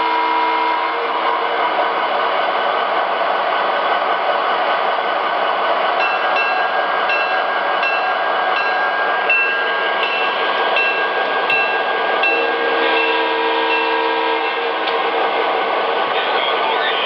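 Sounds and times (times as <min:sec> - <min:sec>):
bell ringing: 0:06.0 - 0:14.0.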